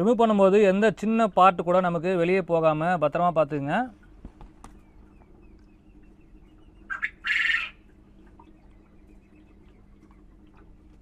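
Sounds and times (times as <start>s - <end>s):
bird harsh call: 6.6s - 7.9s.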